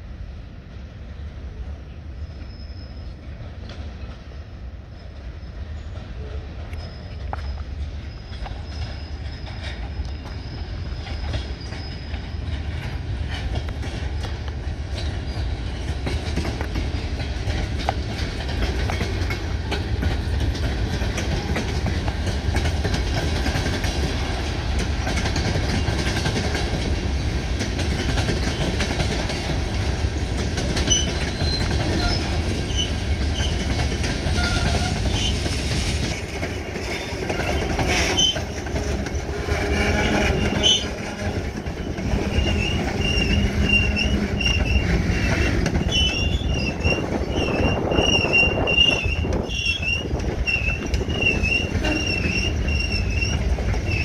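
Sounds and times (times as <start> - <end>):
freight train rumble: 0.0 - 54.0
high wheel squeaks: 2.2 - 4.1, 4.9 - 13.4, 30.7 - 54.0
train wheels clicking over rail joints: 5.0 - 54.0.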